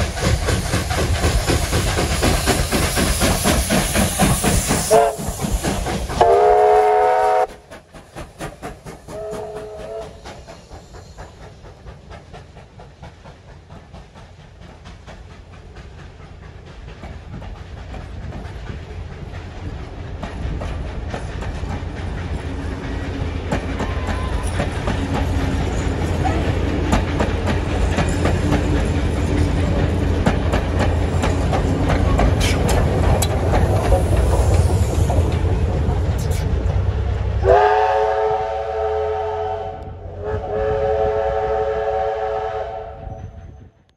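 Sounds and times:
train rumbling: 0:00.0 - 0:43.9
train whistle blasts: 0:04.8 - 0:05.3, 0:06.2 - 0:07.5, 0:09.1 - 0:10.2, 0:37.4 - 0:43.5
wheels clicking over rail joints: 0:07.6 - 0:37.4.

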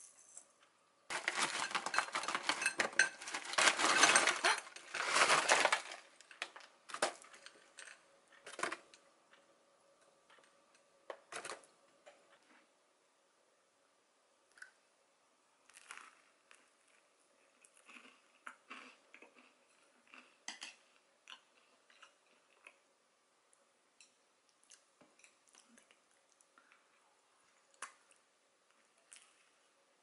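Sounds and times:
crunching and chewing toast: 0:15.6 - 0:22.9.

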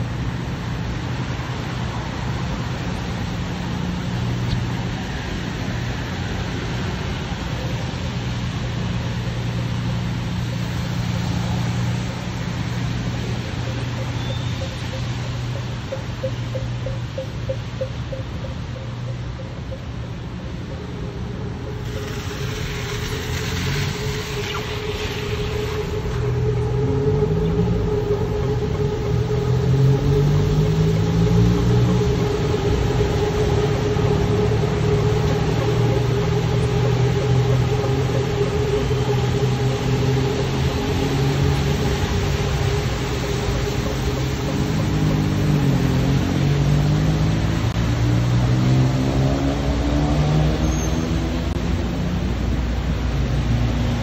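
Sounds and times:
vehicle engines accelerating: 0:00.0 - 0:54.0
tyre hiss on wet road: 0:21.7 - 0:26.4, 0:30.2 - 0:49.3.

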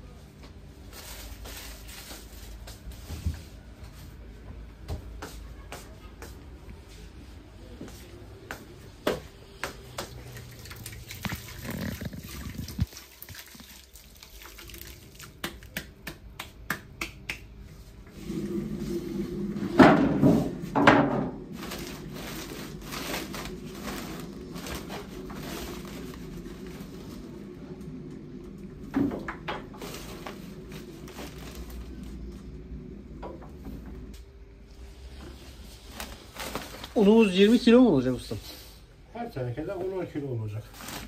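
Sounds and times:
mixer low hum: 0:17.6 - 0:37.2.

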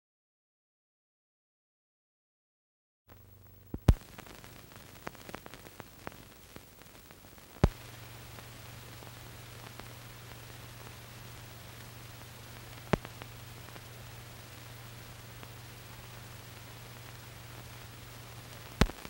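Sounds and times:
film soundtrack hiss and crackle: 0:03.1 - 0:19.0
steady low hum: 0:03.1 - 0:19.0
sharp pops: 0:03.7 - 0:11.0, 0:11.8 - 0:14.0, 0:18.6 - 0:19.0.

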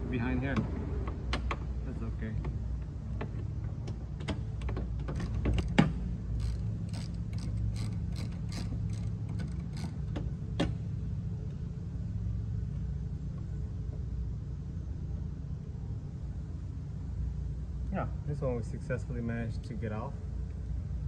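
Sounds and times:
steady low hum: 0:00.0 - 0:21.0
ratchet wrench clicking: 0:05.1 - 0:10.2.

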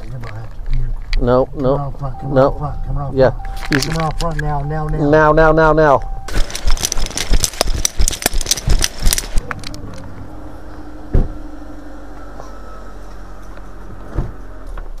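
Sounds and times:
low hum: 0:00.0 - 0:15.0
microphone handling rustles: 0:06.3 - 0:09.4.

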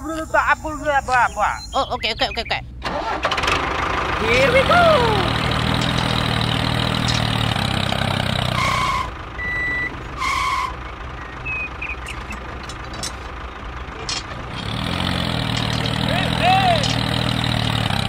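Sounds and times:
tractor engine idling: 0:00.0 - 0:18.0
electronic reversing beeps: 0:08.6 - 0:12.4.

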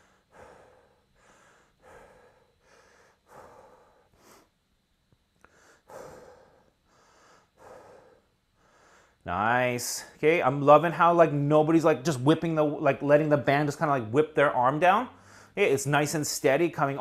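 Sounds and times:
man breathing rhythmically: 0:00.0 - 0:10.2, 0:15.1 - 0:15.7.

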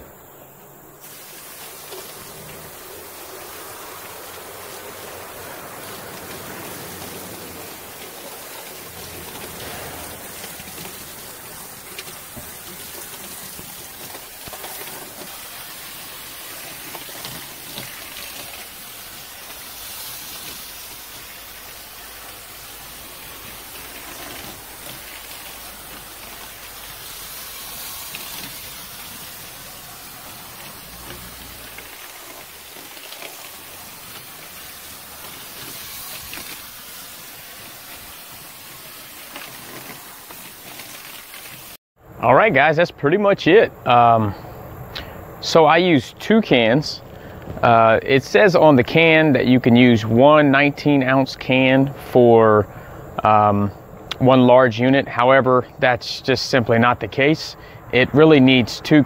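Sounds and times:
hose spraying water on metal fins: 0:01.0 - 0:41.8.

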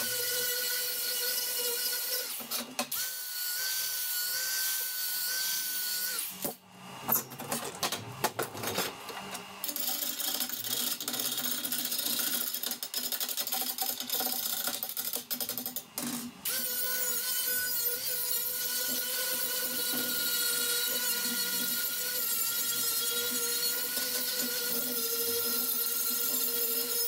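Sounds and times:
angle grinder grinding steel: 0:16.5 - 0:27.0.

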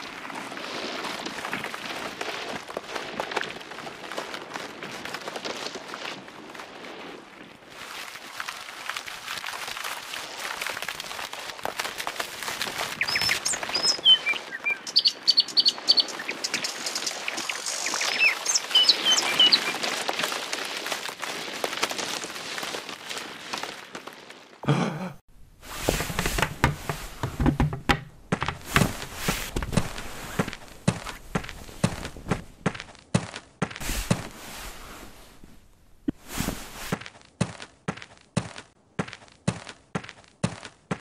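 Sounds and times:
outdoor ambience: 0:00.0 - 0:41.0
small birds chirping: 0:12.9 - 0:19.9
knocks and thumps: 0:25.7 - 0:34.3.

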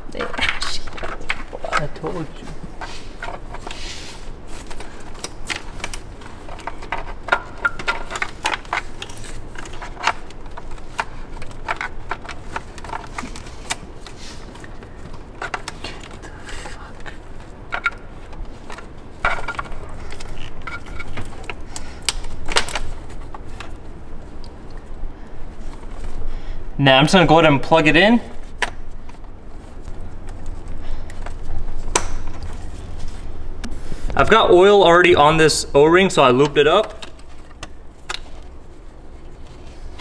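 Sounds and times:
plastic parts clicking and rattling: 0:04.5 - 0:24.8.

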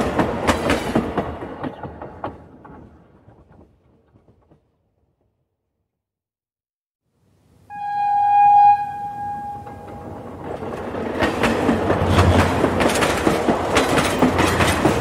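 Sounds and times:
train wheels clattering over rail joints: 0:00.0 - 0:04.7, 0:09.9 - 0:15.0
train horn: 0:07.7 - 0:10.4.

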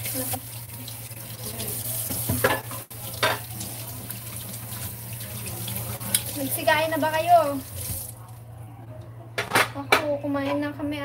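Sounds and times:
water running from tap: 0:00.0 - 0:08.2.

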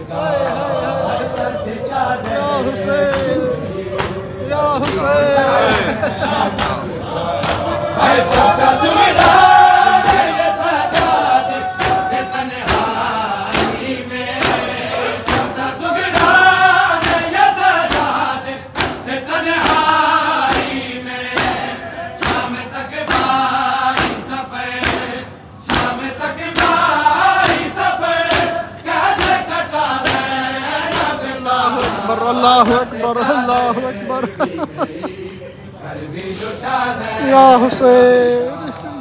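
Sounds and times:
crowd of men chanting: 0:00.0 - 0:39.0
hands beating on chests: 0:11.8 - 0:13.8.

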